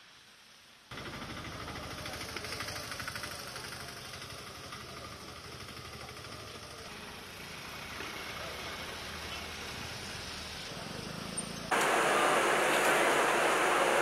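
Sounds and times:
engine humming: 11.7 - 14.0
loud even hiss: 11.7 - 14.0.

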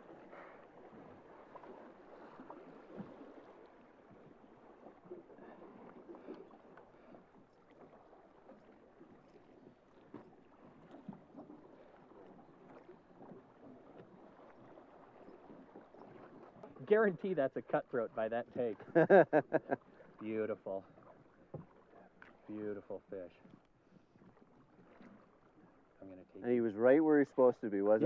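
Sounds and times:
flowing river water: 0.0 - 28.0.

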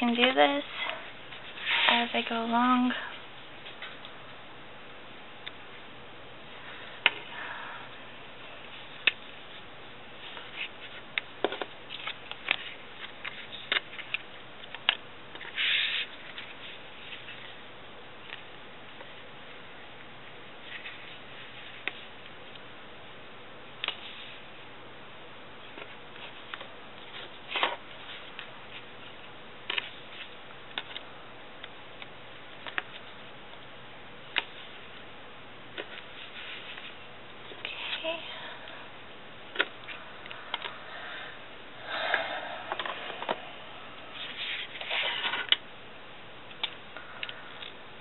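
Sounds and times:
tape clicking and crinkling: 8.6 - 17.6, 23.8 - 24.3, 25.6 - 35.0, 35.7 - 38.0, 46.5 - 47.8.

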